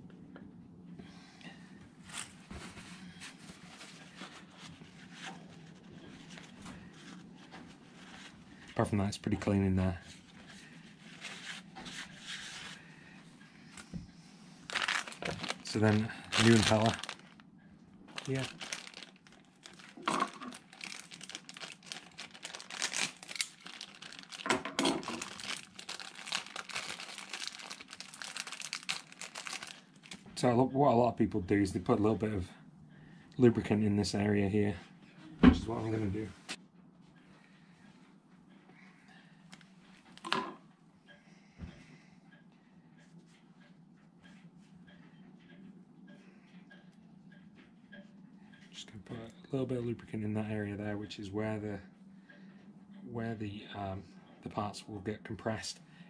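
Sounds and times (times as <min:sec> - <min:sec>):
plastic packaging crinkling: 0:14.7 - 0:17.4, 0:18.1 - 0:30.3.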